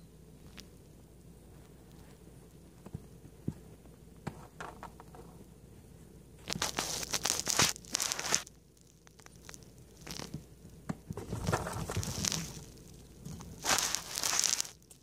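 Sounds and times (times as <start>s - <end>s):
kitten rustling a toy: 6.5s - 8.5s, 11.2s - 15.0s.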